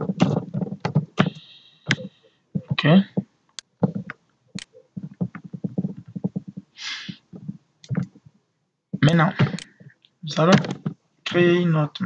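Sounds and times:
breathy hiss: 1.2s - 1.9s, 6.8s - 7.2s
man murmuring: 1.2s - 2.0s, 9.0s - 9.6s.

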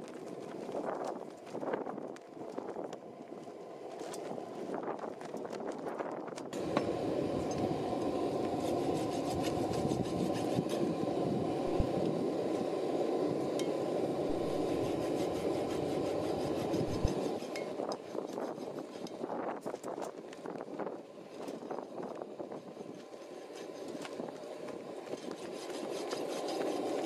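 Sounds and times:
file scraping metal: 8.5s - 10.8s, 14.3s - 19.2s, 25.1s - 27.0s.

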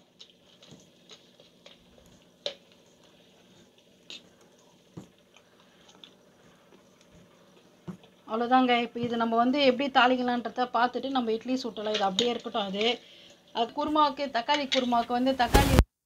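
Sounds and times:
batter squelching: 0.0s - 15.5s.

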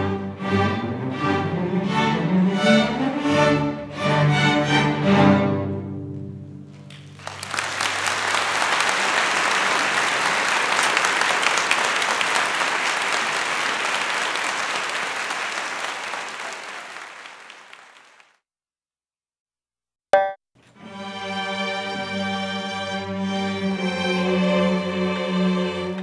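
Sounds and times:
audience applause: 6.7s - 18.4s
string orchestra chord: 20.8s - 26.0s.

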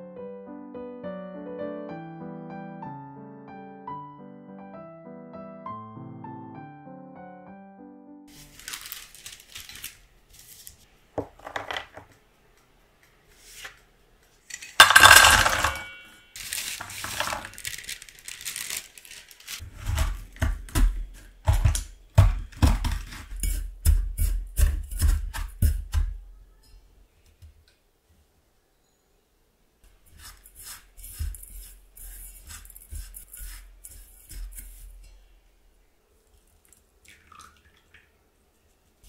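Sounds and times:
hard pieces clattering in metal bowl: 14.5s - 20.2s
rolling pin pounding crackers: 14.8s - 15.9s, 19.6s - 26.3s.

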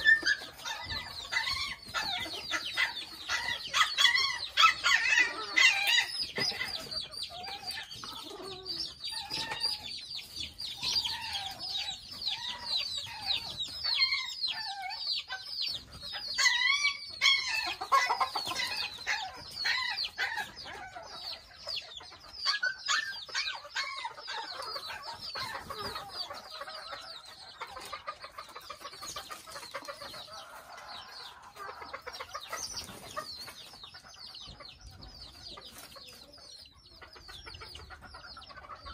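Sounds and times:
chickens clucking: 0.0s - 38.9s
rapid high peeps and chirps: 0.0s - 38.9s.

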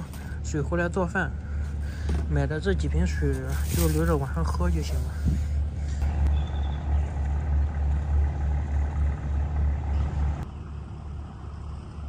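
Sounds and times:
barge engine throbbing: 4.4s - 12.0s.

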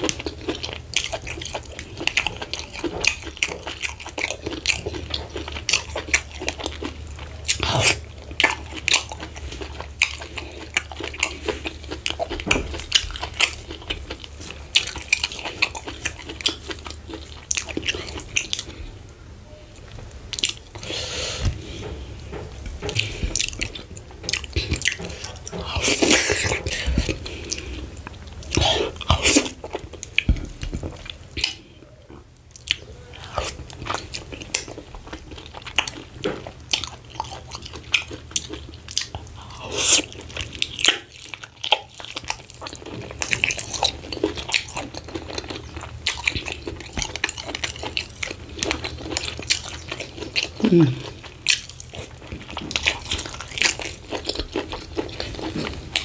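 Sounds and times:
person biting and chewing: 0.0s - 18.7s.

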